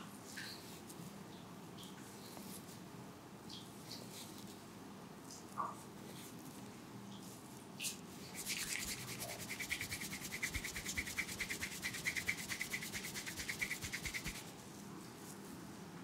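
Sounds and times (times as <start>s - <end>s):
fingertips rubbing hair and scalp: 8.3s - 14.5s.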